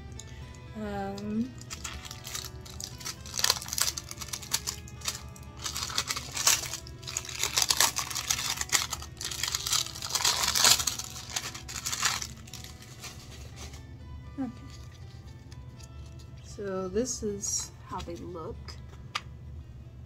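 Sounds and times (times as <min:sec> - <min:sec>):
background music: 0:00.0 - 0:20.0
plastic wrapping crinkling: 0:01.2 - 0:16.2.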